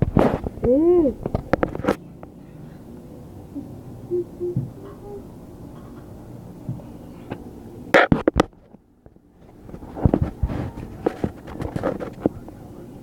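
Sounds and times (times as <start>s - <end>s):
rubbing on phone microphone: 9.5s - 12.3s.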